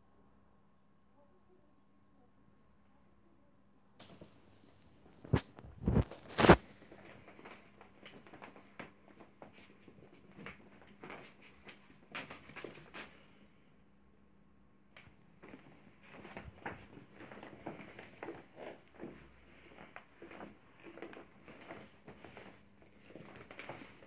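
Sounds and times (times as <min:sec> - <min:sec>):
pet paws scratching on wood floor: 0:05.2 - 0:13.2, 0:15.4 - 0:24.0.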